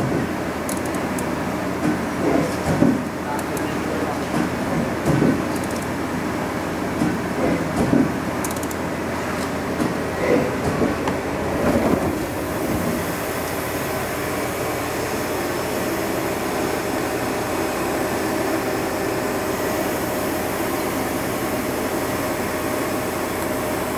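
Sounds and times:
machine hum and whir: 0.0s - 23.9s.

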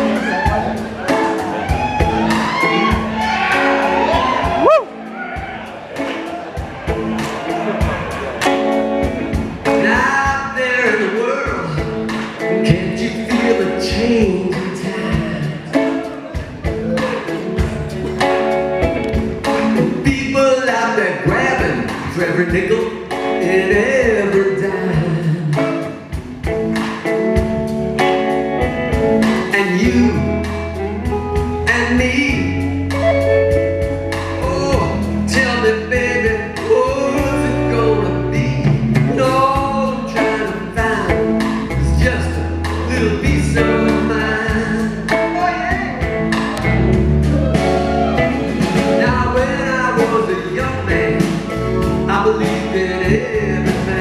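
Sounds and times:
bass guitar: 0.0s - 54.0s
drums: 0.0s - 54.0s
electric guitars: 0.0s - 54.0s
male singer: 9.7s - 18.2s, 19.6s - 26.1s, 29.3s - 33.0s, 34.3s - 46.1s, 46.8s - 54.0s.

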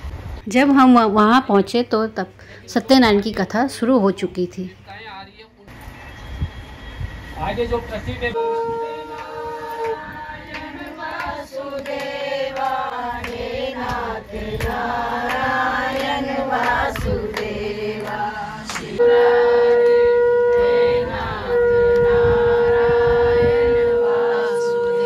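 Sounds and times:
conch shell blown: 8.3s - 11.0s, 19.0s - 25.0s
voices singing a devotional chant: 8.4s - 25.0s.

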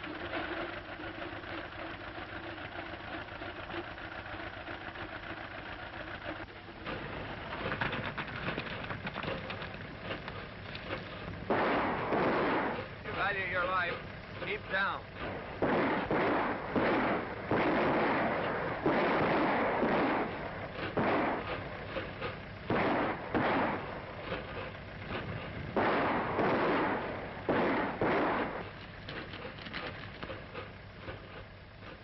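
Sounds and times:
revolver gunshots echoing: 11.4s - 13.9s, 14.5s - 21.6s, 22.6s - 24.1s, 25.7s - 28.6s.

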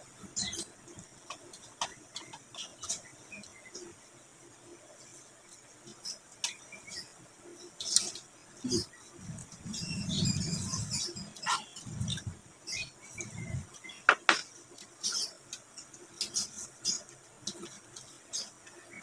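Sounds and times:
dishes clicking and tapping: 14.0s - 14.9s.

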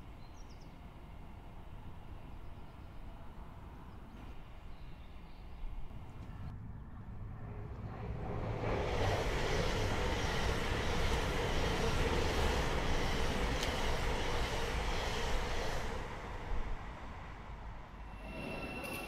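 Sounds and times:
passing vehicle rumble: 6.0s - 14.8s.

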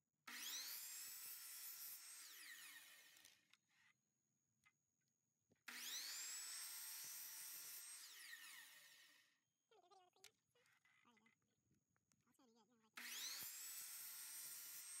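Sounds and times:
saw blade cutting vinyl: 0.3s - 3.4s, 5.7s - 9.3s, 13.0s - 15.0s
miter saw motor whine: 13.0s - 15.0s.

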